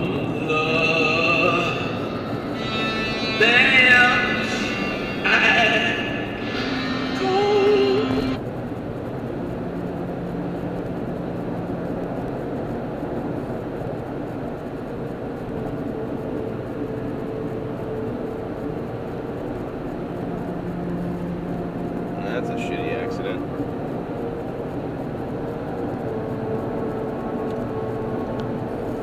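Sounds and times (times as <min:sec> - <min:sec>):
music snippet: 0:00.0 - 0:08.4
car road and engine noise: 0:00.0 - 0:29.0.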